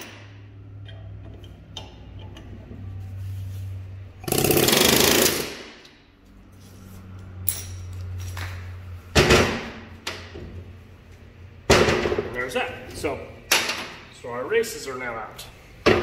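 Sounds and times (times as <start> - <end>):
pneumatic air hammer rattling: 4.2 - 5.8.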